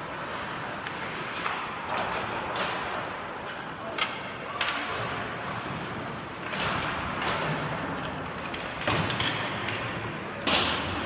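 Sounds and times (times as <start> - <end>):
hockey stick and puck knocks: 6.4 - 11.0.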